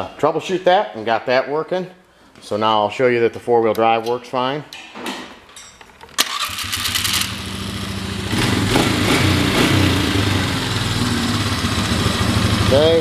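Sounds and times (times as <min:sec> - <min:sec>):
atv engine idling and revving: 0:06.6 - 0:13.0.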